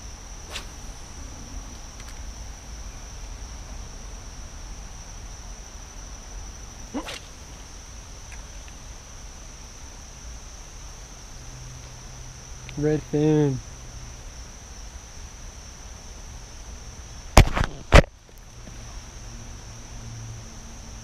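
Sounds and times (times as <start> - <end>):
insects chirping: 0.0 - 21.0
low rumble: 0.6 - 3.2.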